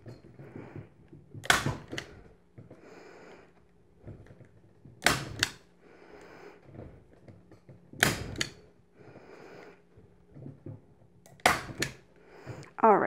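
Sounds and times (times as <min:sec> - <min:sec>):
staple gun firing: 0:01.4 - 0:02.1, 0:05.0 - 0:05.6, 0:08.0 - 0:08.6, 0:11.3 - 0:12.0.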